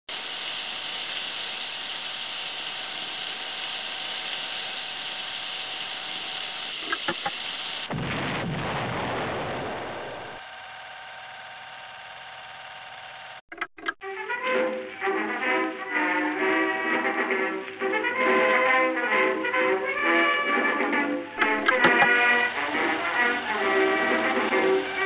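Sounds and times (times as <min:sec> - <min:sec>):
steady hiss: 0:00.1 - 0:09.0, 0:14.6 - 0:25.0
sharp pops: 0:06.8 - 0:08.7, 0:21.4 - 0:22.4.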